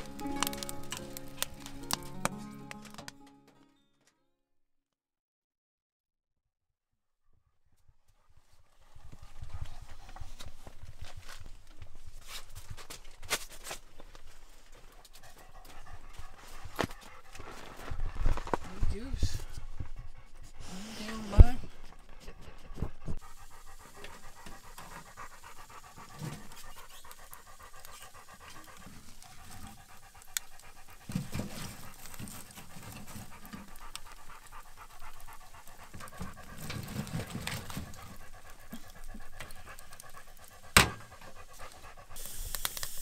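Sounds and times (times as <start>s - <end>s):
dog panting: 8.1s - 42.3s.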